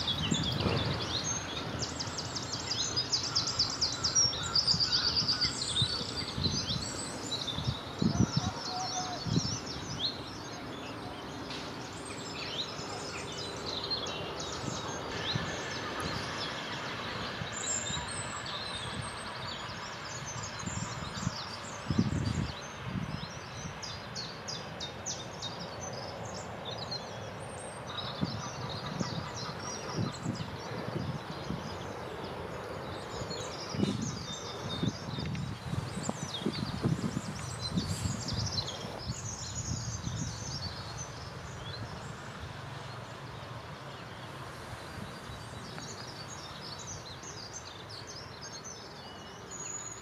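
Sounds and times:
outdoor background noise: 0.0 - 50.0
songbirds chirping and singing: 0.0 - 50.0.

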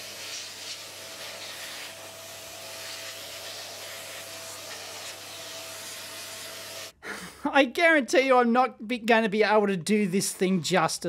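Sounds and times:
vacuum cleaner running: 0.0 - 6.9.

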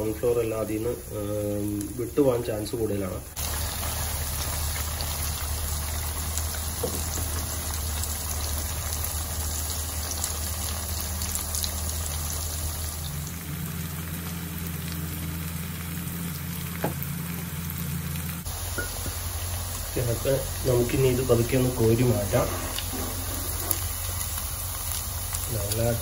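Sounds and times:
meat deep-frying in oil: 0.0 - 26.0
low hum: 11.2 - 20.7.

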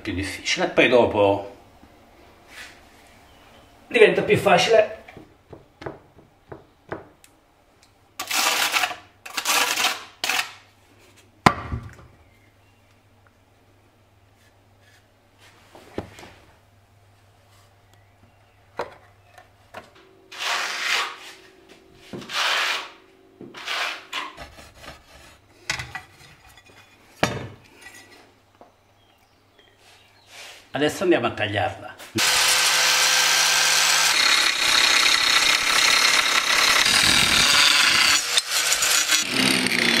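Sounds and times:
tile scraping on adhesive: 20.3 - 21.4, 22.2 - 25.4.

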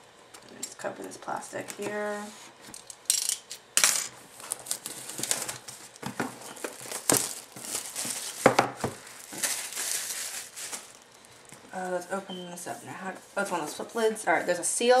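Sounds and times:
plastic wrap crinkling: 4.3 - 12.2
blade slitting plastic wrap: 4.4 - 11.0.

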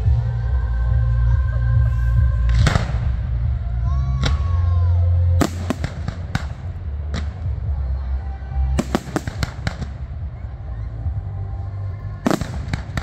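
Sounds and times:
music with heavy bass: 0.0 - 13.0
fireworks bangs: 5.4 - 8.0, 8.6 - 11.2, 12.2 - 13.0.

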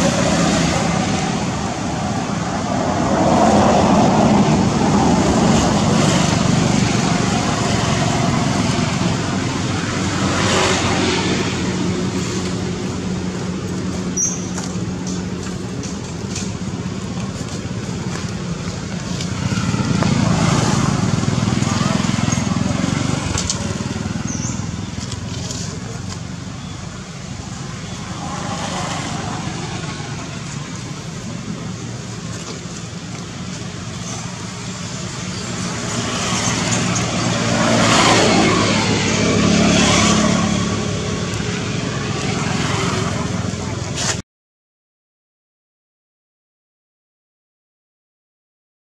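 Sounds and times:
vehicle passing by: 0.0 - 14.7, 17.3 - 26.2, 27.4 - 31.8, 34.0 - 44.2.

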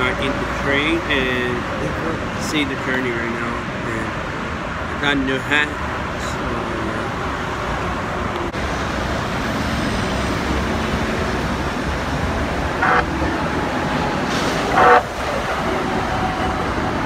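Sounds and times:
road traffic noise: 0.0 - 17.0
light-rail train arriving: 7.8 - 17.0
train horn blasts: 12.8 - 13.4, 14.6 - 16.7.

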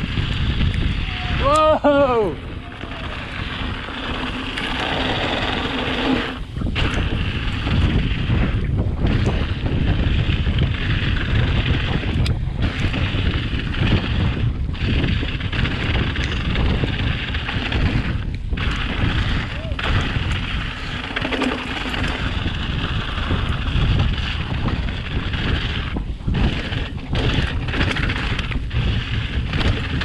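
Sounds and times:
bike tyres rumbling on dirt: 0.0 - 30.0
wind buffeting microphone: 0.0 - 30.0.

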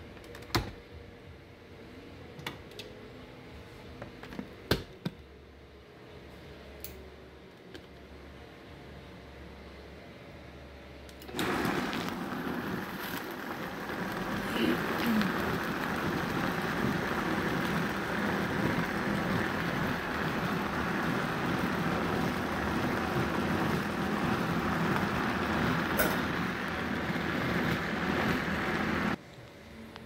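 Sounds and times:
blender running: 11.3 - 29.2.

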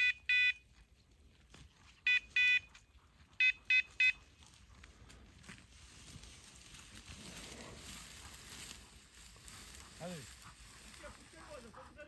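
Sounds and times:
high-pitched collar beeps: 0.0 - 0.6, 2.1 - 2.7, 3.4 - 4.2.

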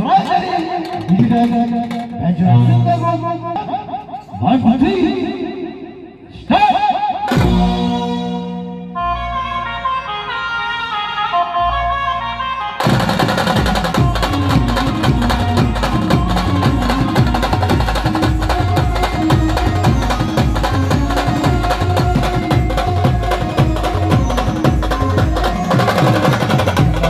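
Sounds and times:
band melody: 7.1 - 27.0
fast drum beat with bass: 12.8 - 27.0.

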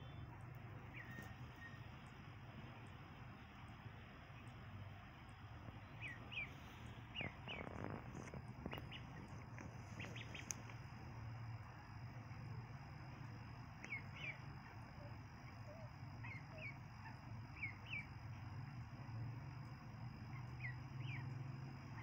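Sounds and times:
low steady hum: 0.0 - 22.0
ducklings peeping: 0.2 - 3.0, 5.8 - 10.8, 13.8 - 14.8, 15.4 - 18.3, 20.4 - 22.0
light clicks: 7.2 - 10.8.

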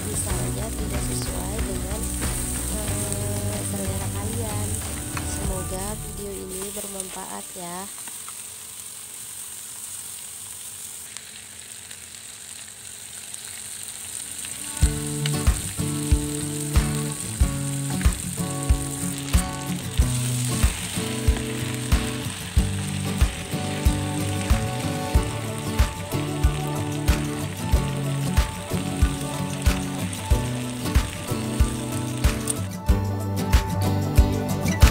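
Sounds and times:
background music with a beat: 0.0 - 6.3, 14.8 - 34.9
chicken sizzling on a griddle pan: 0.0 - 32.9.

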